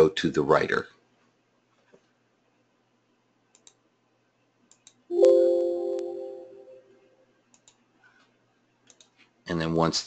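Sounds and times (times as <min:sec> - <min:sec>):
keyboard clicks: 0:03.5 - 0:03.8, 0:07.5 - 0:07.8, 0:08.8 - 0:09.2
computer alert chime: 0:05.1 - 0:07.0.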